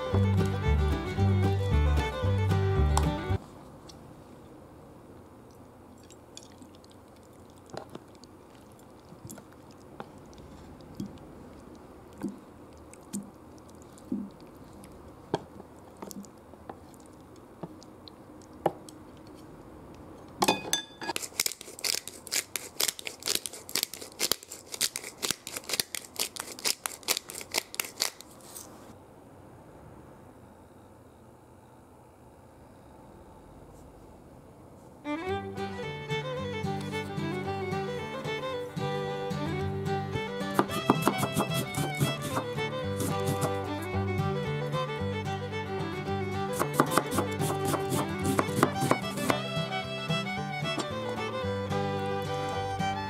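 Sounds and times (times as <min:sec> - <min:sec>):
pepper mill grinding: 0:21.0 - 0:28.7, 0:40.2 - 0:44.4, 0:46.4 - 0:51.3.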